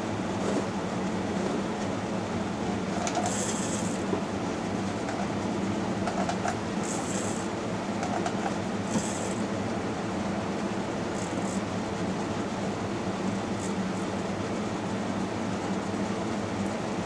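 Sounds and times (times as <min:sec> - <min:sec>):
lathe running: 0:02.6 - 0:09.6, 0:10.5 - 0:14.3.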